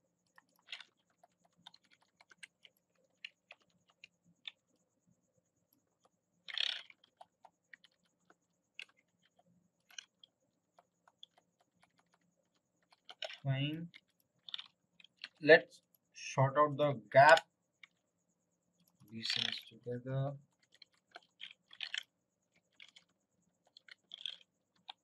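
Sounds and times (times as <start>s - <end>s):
mouse and keyboard clicks: 0.3s - 4.6s, 20.6s - 25.0s.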